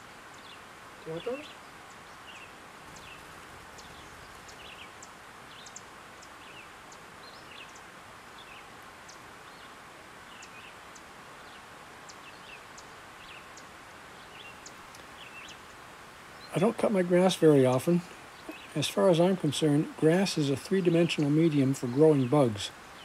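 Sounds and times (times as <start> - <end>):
small birds chirping: 0.0 - 23.0
steady background hiss: 0.0 - 23.0
sharp faint ticks: 14.6 - 15.1.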